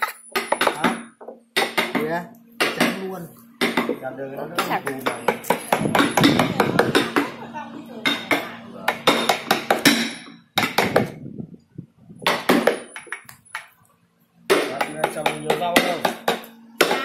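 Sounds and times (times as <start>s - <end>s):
mallet striking chisel into wood: 8.1s - 11.2s.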